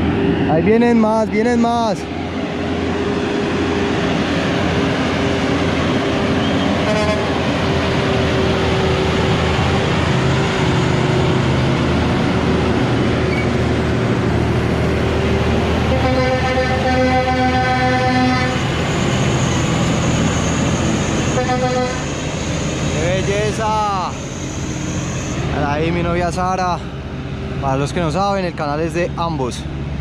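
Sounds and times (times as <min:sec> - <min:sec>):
truck diesel engines running hard: 0:00.0 - 0:30.0
short horn toot: 0:06.8 - 0:07.3
air horn: 0:06.8 - 0:07.4, 0:15.9 - 0:18.6, 0:21.3 - 0:22.1.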